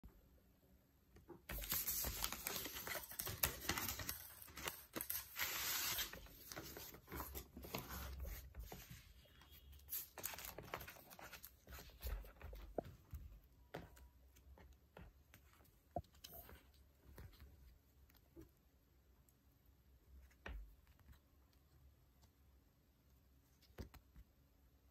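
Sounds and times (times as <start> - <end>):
paper envelope rustling: 1.5 - 9.2, 9.8 - 12.9
plastic sleeves crinkling: 1.5 - 12.9.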